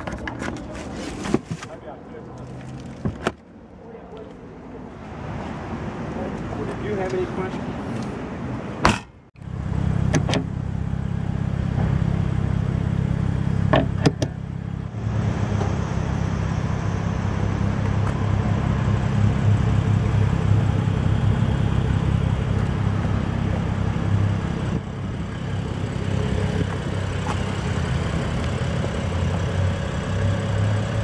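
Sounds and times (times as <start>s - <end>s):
car engine idling: 8.8s - 31.0s.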